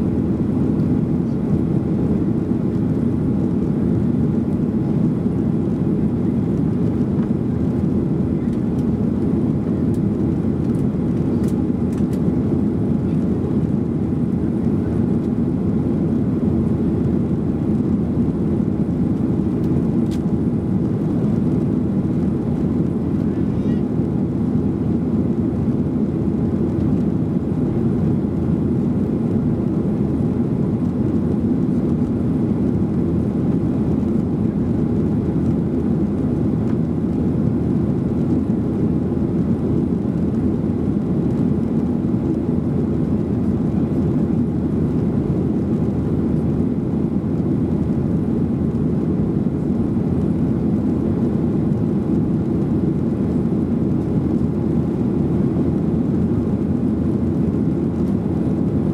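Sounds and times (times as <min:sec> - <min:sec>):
airflow over fuselage: 0:00.0 - 0:58.9
airplane cabin engine rumble: 0:00.0 - 0:58.9.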